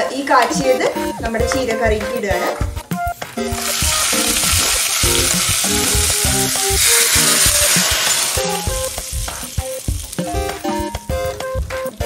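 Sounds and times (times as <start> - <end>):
hot oil sizzling: 3.2 - 12.0.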